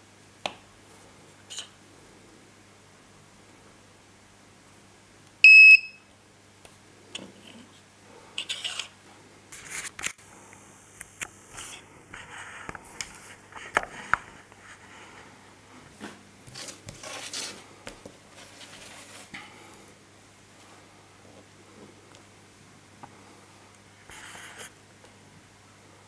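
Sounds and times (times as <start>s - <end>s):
scrapes and rustles on wooden table: 8.4s - 8.9s, 16.0s - 17.6s.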